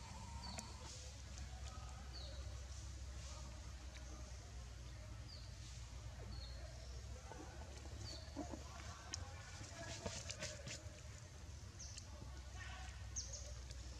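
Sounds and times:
bird chirping: 0:00.0 - 0:00.9.

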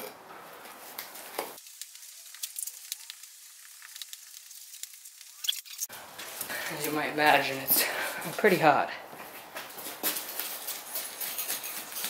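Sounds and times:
sand crackling and ticking: 0:01.1 - 0:07.0.

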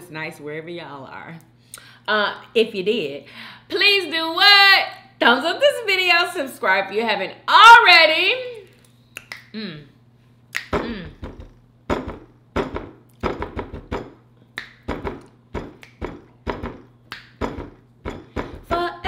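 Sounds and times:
rhythmic knocking: 0:10.7 - 0:14.2, 0:14.8 - 0:19.0.

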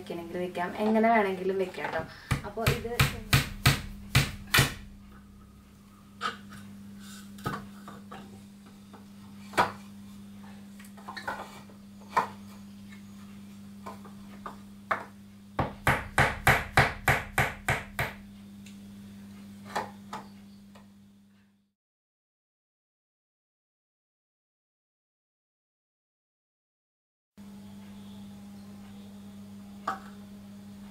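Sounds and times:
steady low hum: 0:00.0 - 0:21.7
shelves knocking against wall: 0:02.2 - 0:05.0, 0:14.9 - 0:18.2
hammer driving nail into wall: 0:02.3 - 0:04.9.

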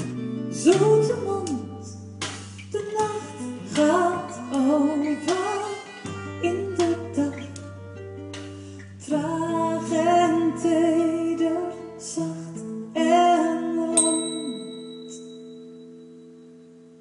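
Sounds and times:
acoustic guitar: 0:00.0 - 0:17.0
woman singing with vibrato: 0:00.5 - 0:02.1, 0:02.7 - 0:07.7, 0:09.0 - 0:15.3
bell-like ding: 0:14.0 - 0:16.7.

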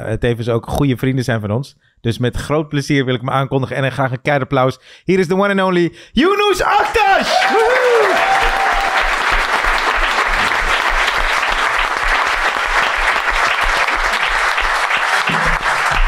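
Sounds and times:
audience applauding: 0:06.8 - 0:16.0.

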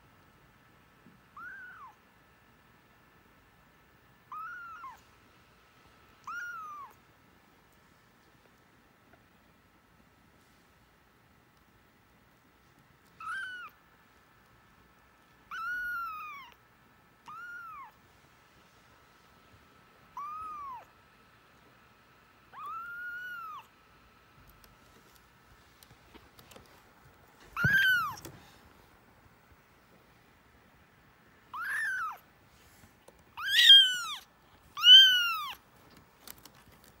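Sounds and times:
kitten mewing: 0:13.2 - 0:13.8, 0:17.2 - 0:18.0, 0:20.2 - 0:20.9, 0:22.6 - 0:23.7, 0:27.6 - 0:28.3, 0:31.6 - 0:32.2, 0:33.4 - 0:35.6.

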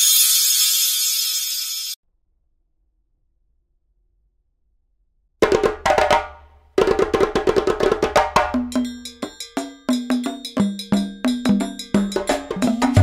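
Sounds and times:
percussive background music: 0:05.4 - 0:13.0.

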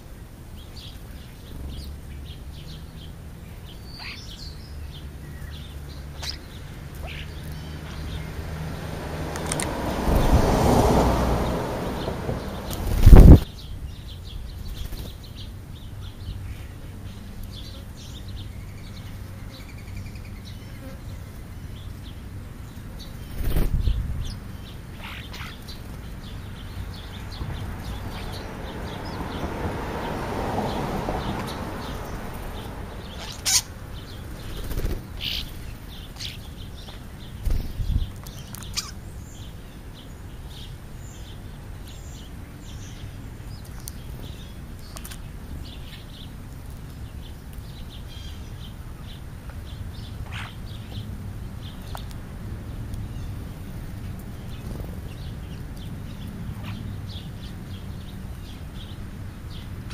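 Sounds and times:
bird feeding taps: 0:09.3 - 0:09.8
bird wing flutters: 0:12.6 - 0:13.4, 0:23.3 - 0:24.0, 0:34.3 - 0:35.6.

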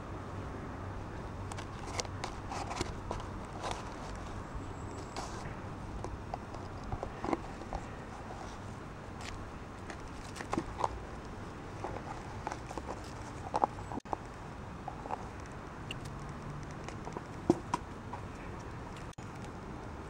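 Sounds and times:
puppies pushing plastic pot: 0:01.6 - 0:14.2.

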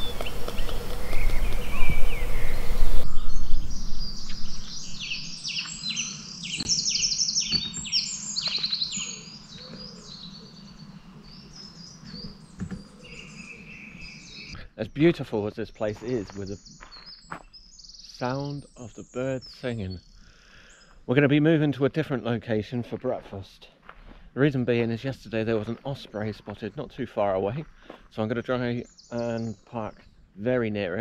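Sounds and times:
loud hiss and low rumble: 0:00.0 - 0:05.3
high bird whistle: 0:00.0 - 0:09.2
songbirds singing trills: 0:00.0 - 0:22.9, 0:23.9 - 0:31.0.

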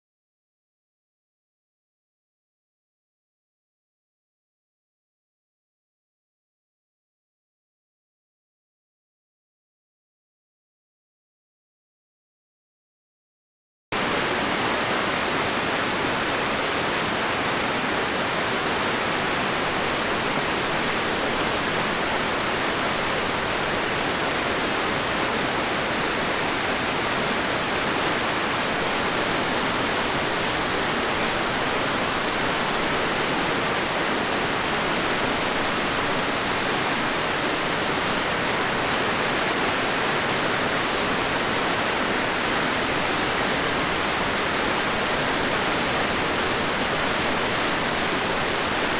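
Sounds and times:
river rushing over falls: 0:14.0 - 0:48.9.

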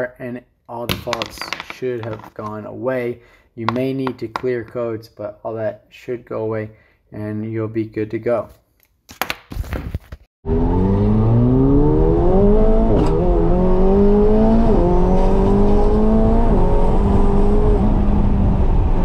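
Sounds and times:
car engine accelerating hard: 0:10.4 - 0:19.0.

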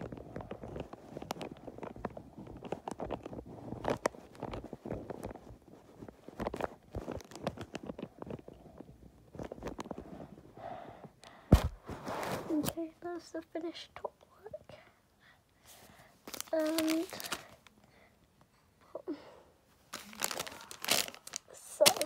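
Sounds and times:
wrapping paper crinkling: 0:00.0 - 0:08.6, 0:16.2 - 0:17.7, 0:19.8 - 0:22.0.

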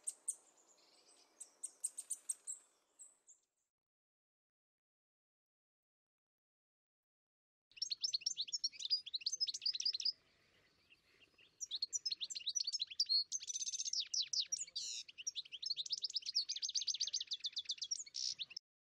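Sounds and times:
songbird chirping and trilling: 0:00.0 - 0:03.5, 0:07.7 - 0:18.6.

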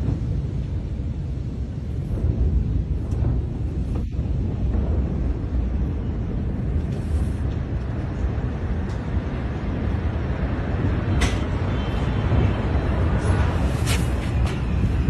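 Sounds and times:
deep rumble: 0:00.0 - 0:15.0.

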